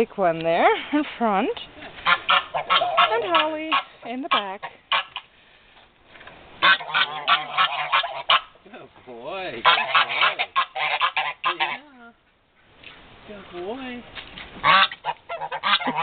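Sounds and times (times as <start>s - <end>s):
geese honking: 2.0s - 5.3s, 6.6s - 8.6s, 9.4s - 11.9s, 14.6s - 16.0s.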